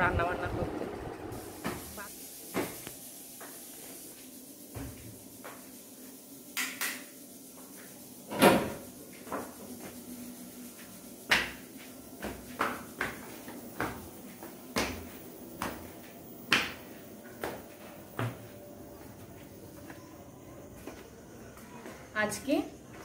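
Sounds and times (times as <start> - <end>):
footsteps on stairs: 10.8 - 23.0.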